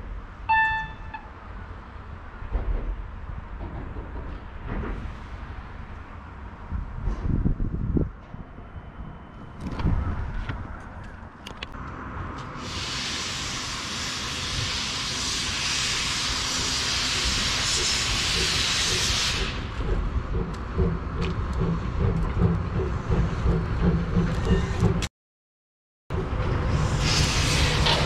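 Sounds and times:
steam locomotive hissing steam: 0:12.5 - 0:20.0, 0:26.6 - 0:28.0
rhythmic locomotive beating: 0:18.4 - 0:25.1.

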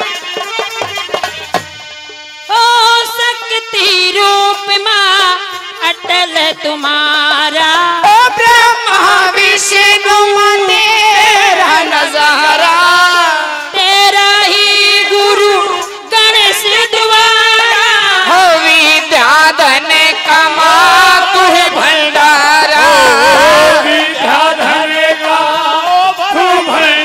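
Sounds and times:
woman singing ornamented melody: 0:02.5 - 0:12.5.

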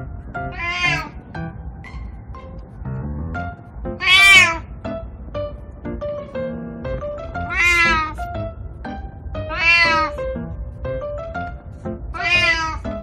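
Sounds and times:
light music with plucked notes: 0:00.0 - 0:13.0
cat meowing: 0:00.5 - 0:01.2, 0:04.0 - 0:04.7, 0:07.5 - 0:08.2, 0:09.5 - 0:10.2, 0:12.1 - 0:12.9.

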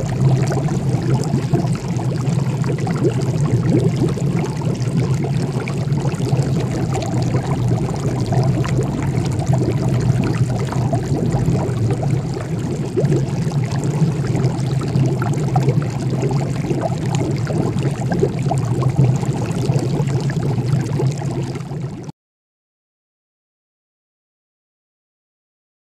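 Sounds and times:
low hum: 0:00.0 - 0:19.7
liquid boiling and bubbling: 0:00.0 - 0:22.1.

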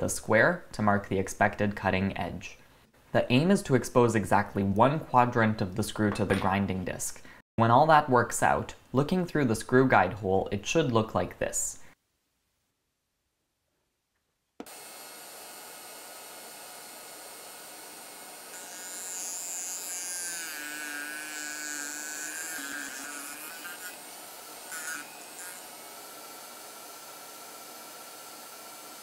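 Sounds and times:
rotary tool grinding disc running: 0:14.7 - 0:29.0
high-pitched grinding of metal tip: 0:18.5 - 0:27.4.

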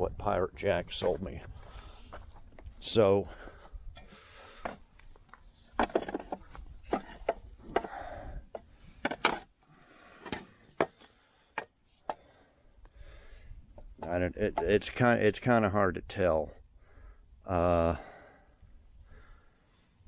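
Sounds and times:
steel parts knocking and clunking: 0:05.7 - 0:09.5.

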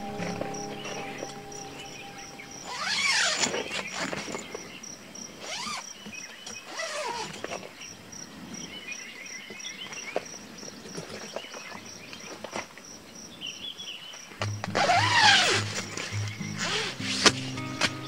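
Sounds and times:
rising and falling calls: 0:00.0 - 0:03.5
insects chirping: 0:00.0 - 0:06.1.

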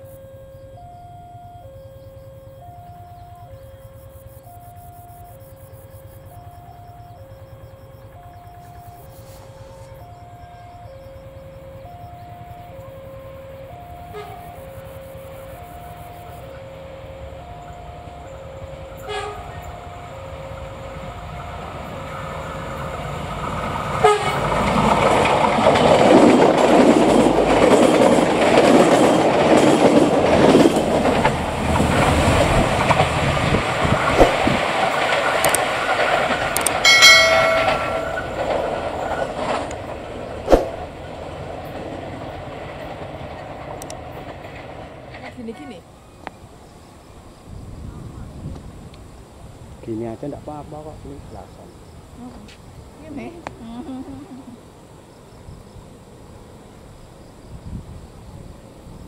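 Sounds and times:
two-note electronic warning chime: 0:00.0 - 0:14.8, 0:36.8 - 0:38.4
train rushing past: 0:02.0 - 0:53.4
train horn blast: 0:12.8 - 0:14.9, 0:18.9 - 0:20.1, 0:24.0 - 0:24.5
wheels clattering over rail joints: 0:18.4 - 0:45.9.

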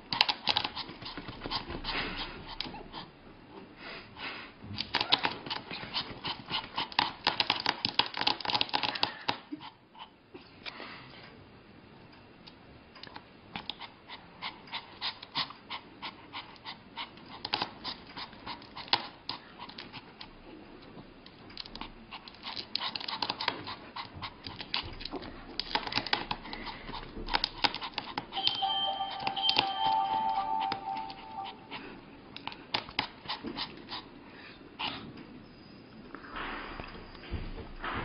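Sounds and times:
dog panting: 0:00.2 - 0:03.2, 0:13.6 - 0:20.4, 0:21.8 - 0:28.4.

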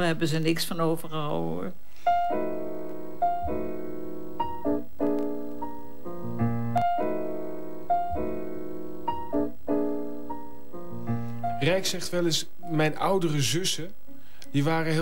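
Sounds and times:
calm piano music: 0:02.0 - 0:15.0.

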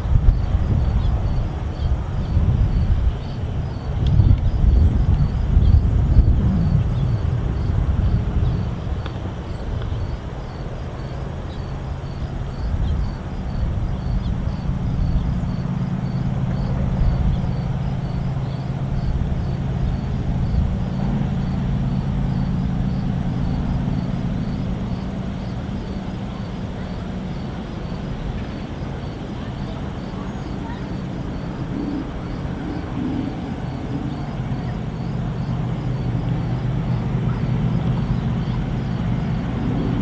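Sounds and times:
freight train rumbling on rails: 0:00.0 - 0:40.0
low hum: 0:00.0 - 0:40.0.

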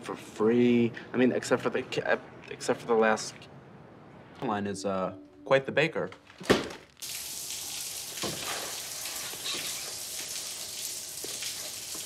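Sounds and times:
shower running: 0:07.0 - 0:12.0.

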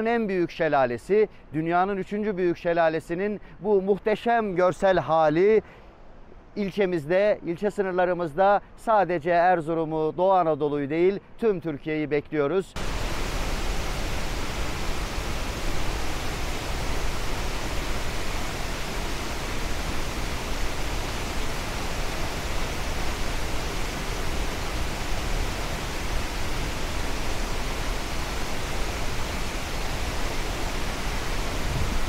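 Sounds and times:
waterfall rushing: 0:12.8 - 0:32.0.

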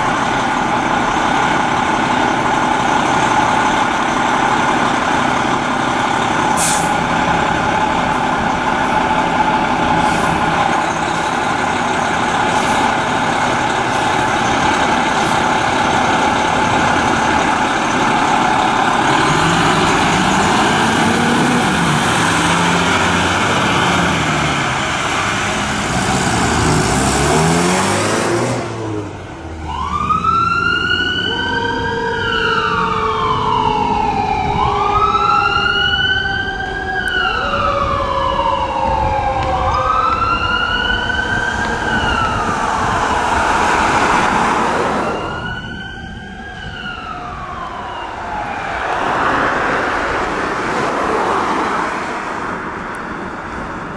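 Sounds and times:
truck engine: 0:00.0 - 0:53.9
mechanical siren howl: 0:29.5 - 0:50.7
electronic siren wailing: 0:29.6 - 0:50.3.

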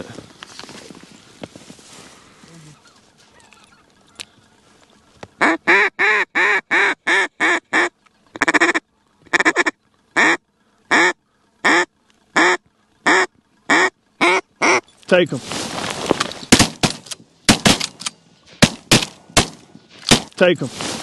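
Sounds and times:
duck call quacks: 0:05.4 - 0:14.8.

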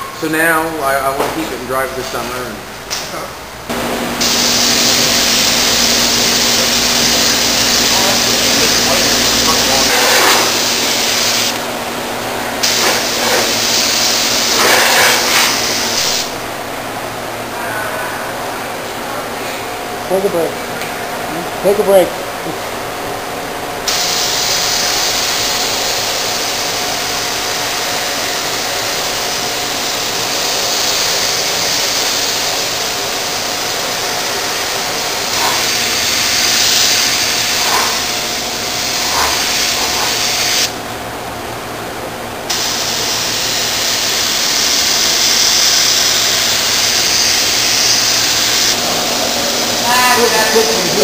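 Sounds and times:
spray gun air hissing: 0:03.7 - 0:11.6, 0:12.6 - 0:16.4, 0:23.9 - 0:40.8, 0:42.5 - 0:51.0.

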